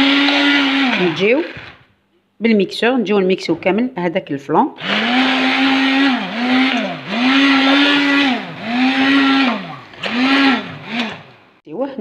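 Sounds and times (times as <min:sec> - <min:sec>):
immersion blender whine: 0:00.0 - 0:01.8, 0:04.8 - 0:11.6.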